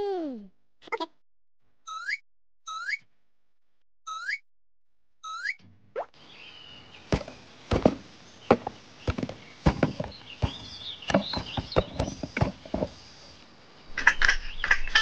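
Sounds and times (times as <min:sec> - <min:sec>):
sharp knocks and taps: 0:07.1 - 0:12.9.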